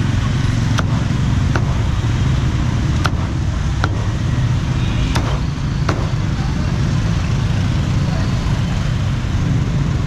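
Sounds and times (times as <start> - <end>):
street traffic rumble: 0.0 - 10.0
cleaver chopping on block: 0.7 - 1.8, 3.0 - 4.1, 5.1 - 6.1.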